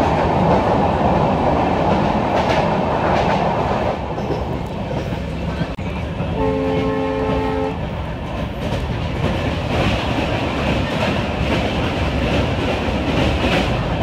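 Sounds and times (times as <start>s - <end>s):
train rumble: 0.0s - 14.0s
locomotive horn: 6.4s - 7.8s.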